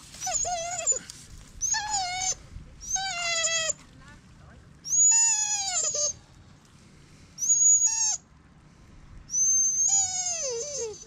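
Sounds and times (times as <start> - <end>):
dog whining: 0.2 - 3.8, 4.9 - 6.2, 7.4 - 8.2, 9.3 - 11.0.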